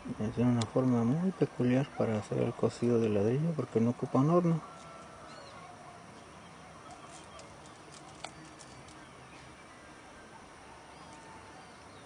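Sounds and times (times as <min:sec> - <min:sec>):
bird calls: 0:00.0 - 0:12.0.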